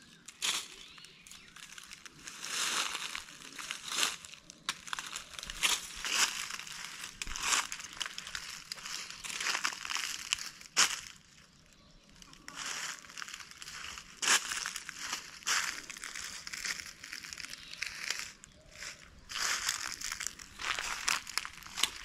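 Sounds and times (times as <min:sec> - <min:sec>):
footsteps crunching through dry leaves: 0:00.0 - 0:22.0.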